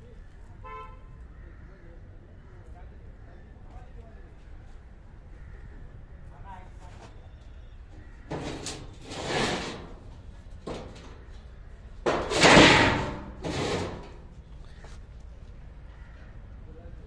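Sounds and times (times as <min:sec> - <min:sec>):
sheet metal scraping and sliding: 0:08.3 - 0:14.4.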